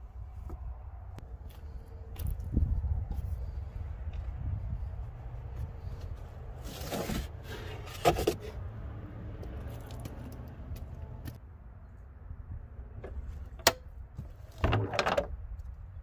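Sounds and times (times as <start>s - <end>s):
board scraping against trunk lining: 6.6s - 8.6s.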